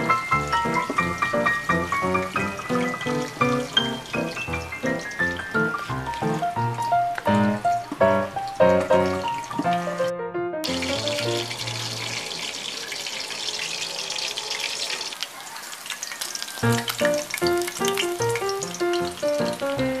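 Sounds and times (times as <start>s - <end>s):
fish sizzling in hot oil: 0.0s - 10.0s, 10.6s - 20.0s
background music: 0.0s - 12.2s, 16.6s - 20.0s.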